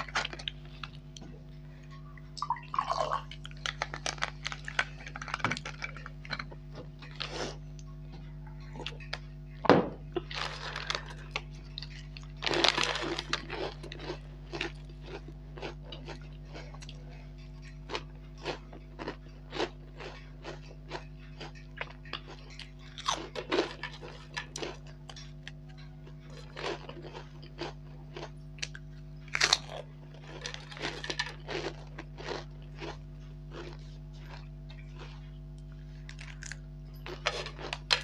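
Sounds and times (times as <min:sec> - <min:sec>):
crunching and chewing snacks: 0:00.0 - 0:09.3, 0:10.1 - 0:38.0
low electrical hum: 0:00.0 - 0:38.0.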